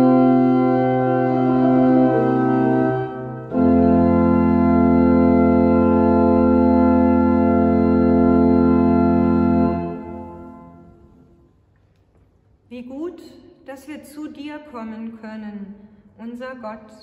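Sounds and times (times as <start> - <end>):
pipe organ chord: 0.0 - 11.3.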